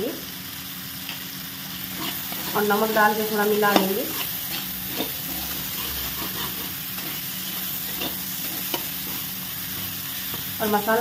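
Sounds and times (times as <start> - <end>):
food sizzling in oil: 0.0 - 11.0
spatula scraping pan: 1.8 - 10.6.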